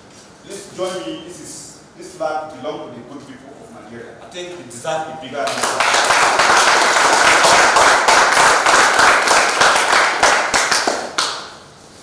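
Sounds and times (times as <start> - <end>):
audience clapping: 5.4 - 11.6.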